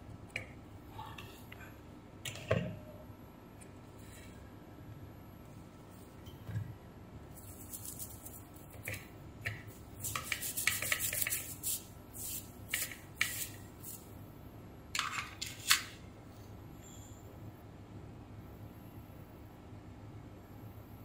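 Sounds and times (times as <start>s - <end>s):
brush scrubbing circuit board: 7.3s - 9.0s, 9.7s - 14.0s.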